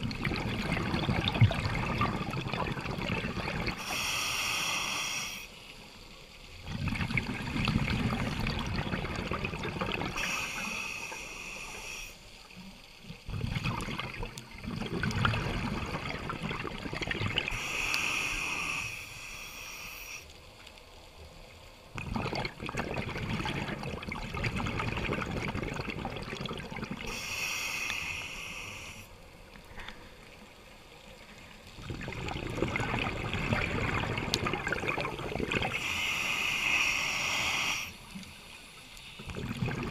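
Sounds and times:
bubbling gurgling exhale: 0.0s - 5.2s, 6.6s - 12.0s, 13.1s - 19.0s, 21.9s - 29.0s, 31.7s - 38.0s, 39.2s - 39.9s
hissing regulator inhale: 3.7s - 5.6s, 10.1s - 12.4s, 17.5s - 20.3s, 27.1s - 30.3s, 35.6s - 39.3s.

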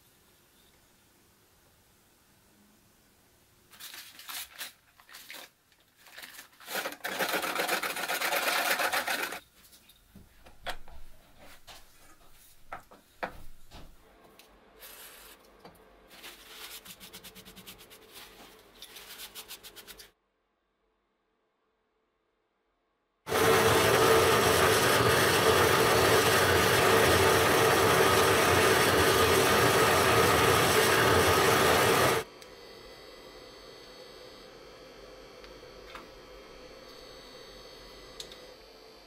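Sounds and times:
hand rubbing circuit board on workbench: 16.1s - 20.1s.

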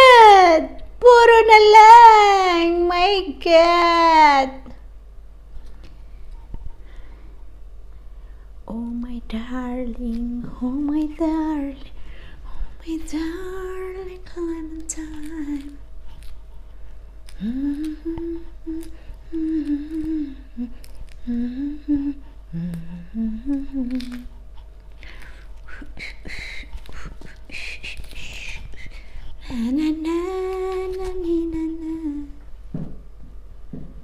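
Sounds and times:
woman humming a slow tune: 8.6s - 11.9s, 12.8s - 15.8s, 17.3s - 24.4s, 25.7s - 32.5s.

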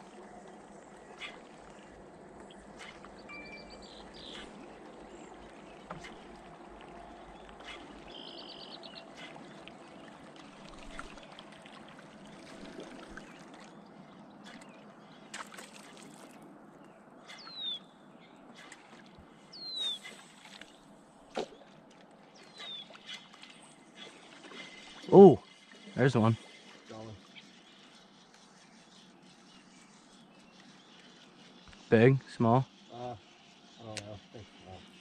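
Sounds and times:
birds calling: 0.0s - 35.0s
water trickling and lapping: 0.0s - 35.0s
downward-slurring bird whistles: 19.6s - 20.2s.

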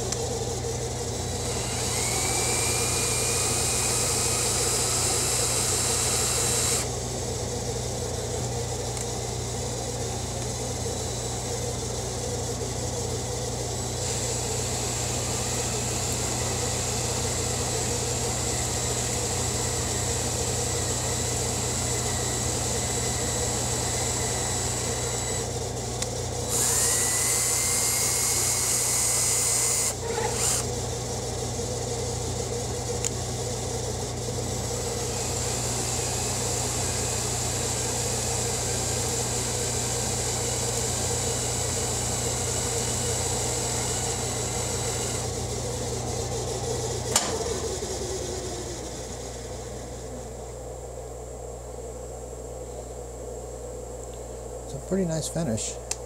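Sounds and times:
lathe humming: 0.0s - 51.3s
faint whine: 45.0s - 56.0s
sharp click: 47.1s - 47.6s.

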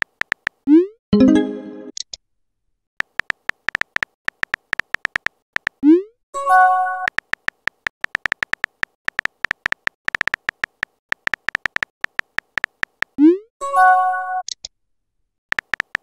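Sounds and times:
message sent chime: 1.2s - 1.9s
keyboard tap clicks: 3.0s - 5.8s, 7.1s - 13.2s, 15.5s - 16.0s.

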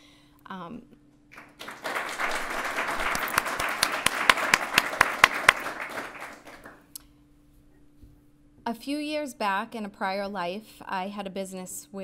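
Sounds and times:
audience applauding: 1.4s - 6.8s
loud single claps: 1.4s - 6.8s.

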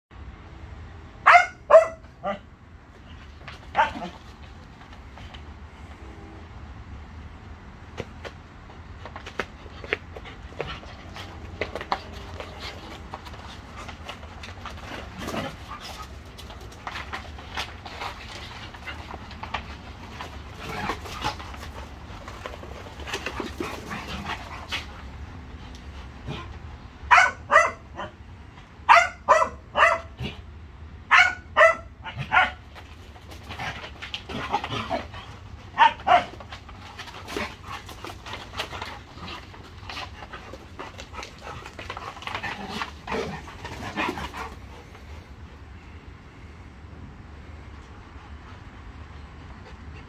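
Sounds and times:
dogs barking: 1.2s - 2.4s, 27.1s - 28.2s, 28.9s - 30.4s, 31.1s - 32.6s, 35.7s - 36.4s.

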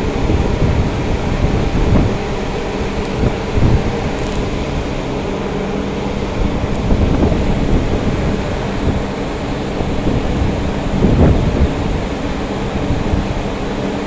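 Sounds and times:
ship engines droning: 0.0s - 14.0s
wind rumbling on microphone: 0.0s - 14.0s.

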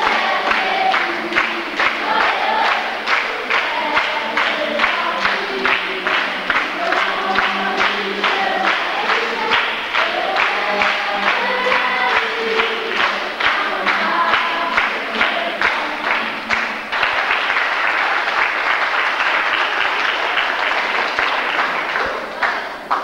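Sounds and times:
group singing: 0.0s - 20.5s
audience applause: 0.0s - 23.0s
audience clapping along: 0.0s - 23.0s.

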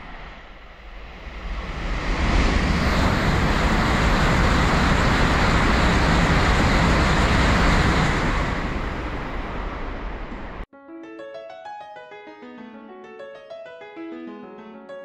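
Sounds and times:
train passing at high speed: 0.0s - 10.7s.

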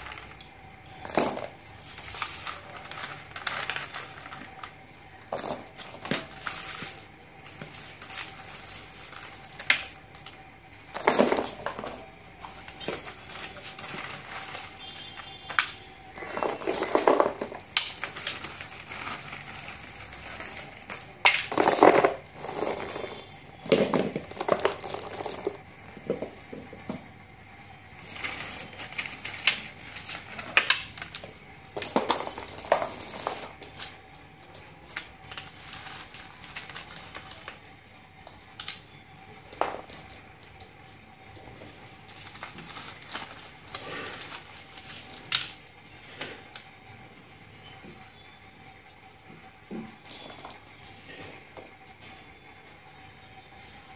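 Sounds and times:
aluminium foil crinkling: 0.0s - 23.4s, 28.0s - 38.9s, 39.6s - 45.6s.

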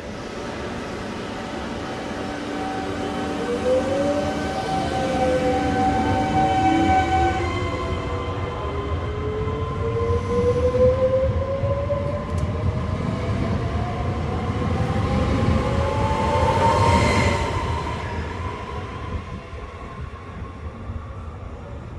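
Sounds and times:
train rumbling on rails: 0.0s - 21.9s.

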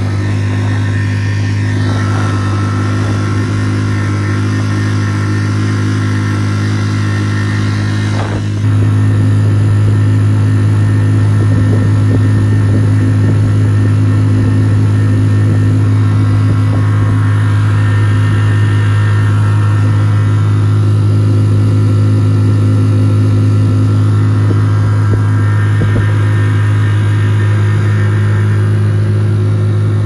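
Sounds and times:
outboard motor droning: 0.0s - 30.0s.

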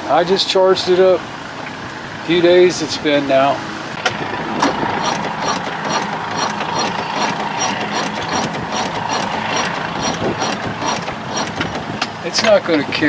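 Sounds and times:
electric starter cranking slowly: 4.0s - 12.2s
regular ticking: 4.0s - 12.2s.

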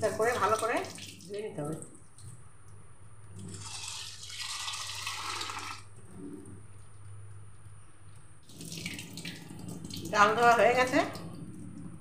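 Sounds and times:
tap water running into bowl: 0.0s - 6.0s, 8.4s - 11.4s.

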